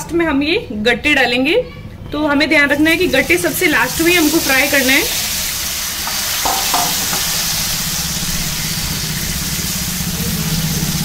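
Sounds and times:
food sizzling in hot oil: 2.7s - 11.0s.

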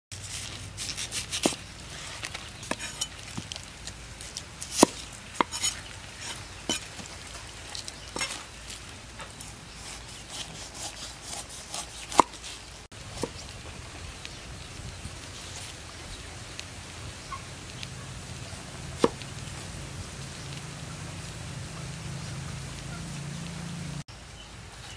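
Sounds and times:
knife crunching through rind: 0.1s - 7.0s, 9.4s - 12.7s.

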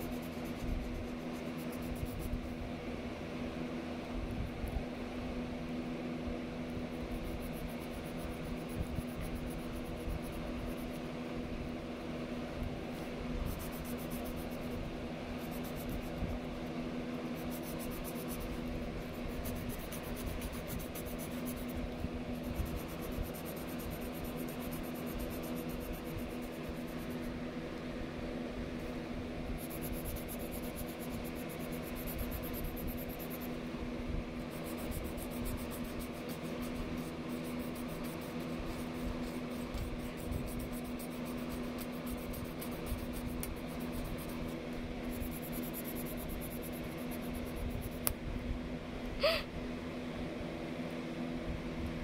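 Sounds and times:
pencil scratching on paper: 0.0s - 2.5s, 6.9s - 11.1s, 13.0s - 16.4s, 17.1s - 27.4s, 29.6s - 33.6s, 34.3s - 48.0s
fan hum: 0.0s - 52.0s.

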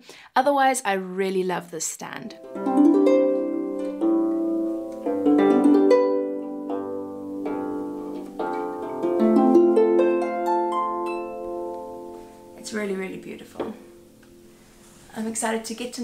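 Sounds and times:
harp plucked by hand: 2.4s - 14.5s.

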